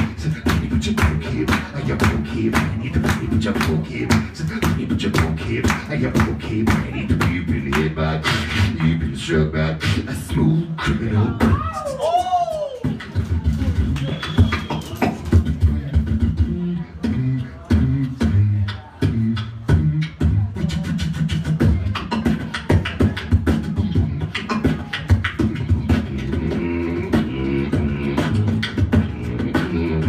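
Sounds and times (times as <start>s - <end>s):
beatboxing clicks and snares: 0.0s - 11.6s, 12.2s - 30.0s
hummed bassline: 0.0s - 11.6s, 15.3s - 30.0s.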